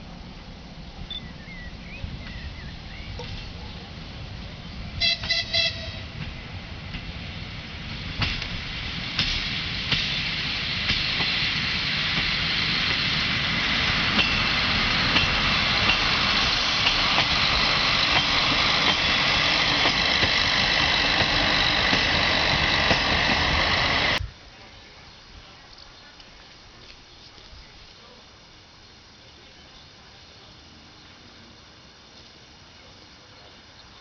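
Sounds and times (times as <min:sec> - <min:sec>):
diesel railcar engine: 0:00.0 - 0:34.0
wheels clicking over rail joints: 0:07.9 - 0:24.2.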